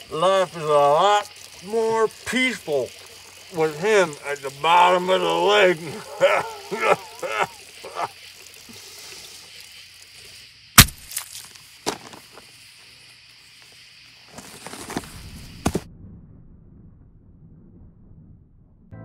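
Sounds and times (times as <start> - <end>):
steady hiss: 0.0 - 15.8
rustling in grass: 13.5 - 15.8
footsteps in grass: 14.2 - 15.8.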